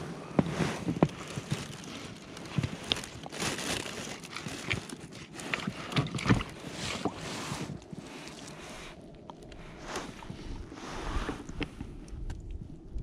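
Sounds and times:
fabric rustle: 0:00.0 - 0:09.0.

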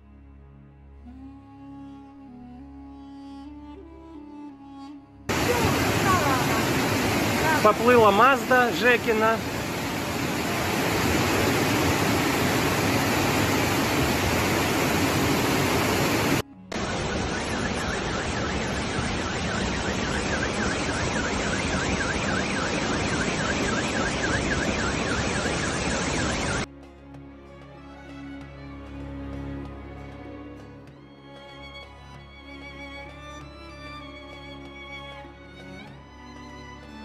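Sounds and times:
rushing floodwater: 0:05.3 - 0:26.7
car alarm warbling: 0:16.7 - 0:26.7.

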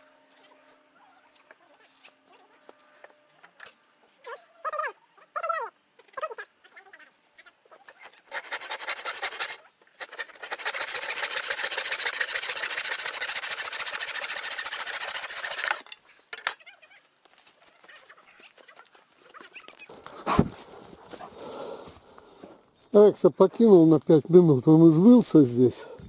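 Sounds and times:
hand saw cutting wood: 0:08.0 - 0:15.9.

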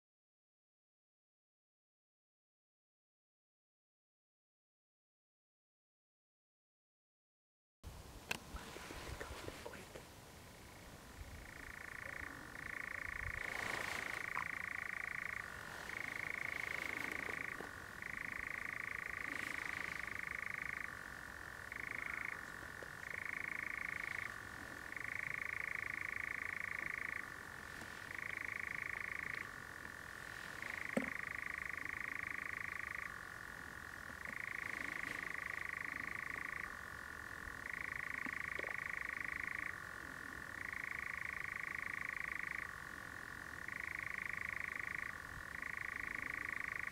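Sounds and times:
nightjar churring: 0:11.3 - 0:46.9.

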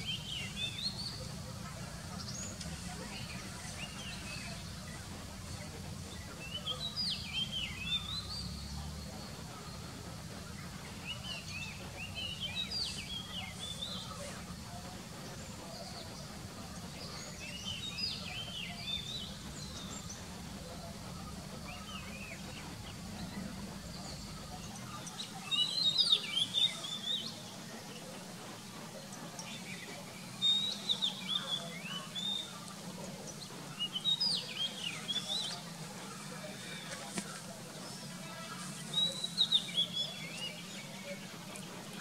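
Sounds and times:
bird singing whistled notes: 0:00.0 - 0:01.3, 0:02.2 - 0:08.8, 0:10.8 - 0:14.2, 0:17.0 - 0:20.3, 0:29.3 - 0:32.7, 0:33.3 - 0:35.7, 0:38.8 - 0:41.2
steady low hum: 0:00.0 - 0:26.2.

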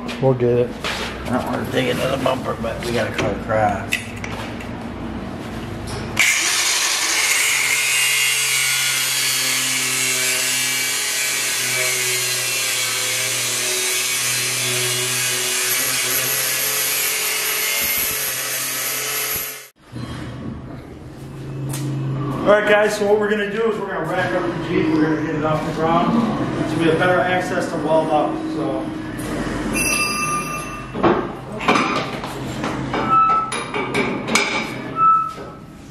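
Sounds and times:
angle grinder cutting metal: 0:06.2 - 0:19.7.

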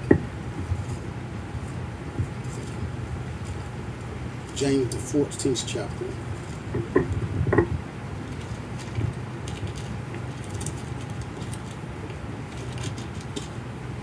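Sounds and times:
low background hum: 0:00.0 - 0:14.0
pages being turned: 0:08.3 - 0:11.8, 0:12.5 - 0:13.6.

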